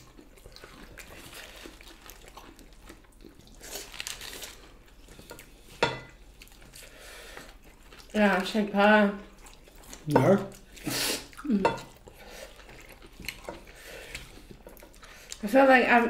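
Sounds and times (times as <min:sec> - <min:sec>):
chewing and mouth noises: 0:00.0 - 0:15.6
food rustling on plates: 0:00.0 - 0:16.0.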